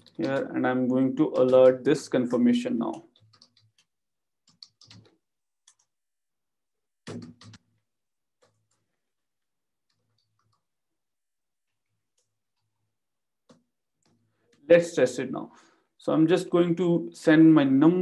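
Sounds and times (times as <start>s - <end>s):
computer keyboard keystrokes: 0.0s - 0.5s, 1.2s - 1.8s, 3.0s - 3.9s, 4.5s - 5.9s.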